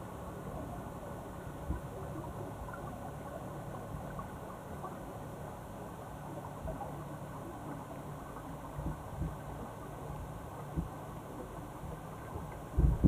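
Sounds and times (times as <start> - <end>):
muffled underwater rumble: 0.0 - 13.0
faint ticks: 6.4 - 12.7.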